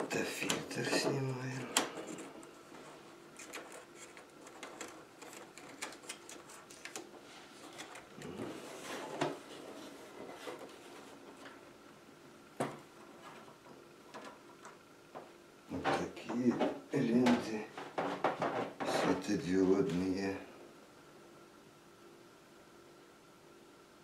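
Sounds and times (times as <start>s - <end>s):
flexing plastic crackling: 0.0s - 9.6s
plastic sheets sliding: 0.1s - 11.6s.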